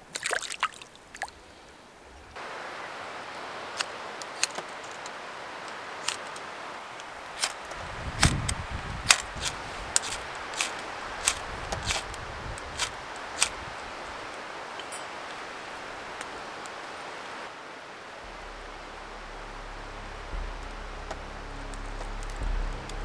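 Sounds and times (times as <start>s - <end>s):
wood fire crackling: 1.9s - 23.0s
fire hiss: 2.4s - 23.0s.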